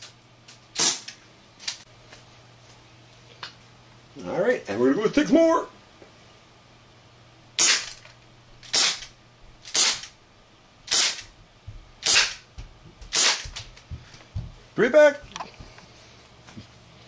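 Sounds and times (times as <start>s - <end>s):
airsoft revolver shots: 0.8s - 1.1s, 7.6s - 7.9s, 8.7s - 9.1s, 9.7s - 10.1s, 10.9s - 11.2s, 12.0s - 12.4s, 13.1s - 13.5s.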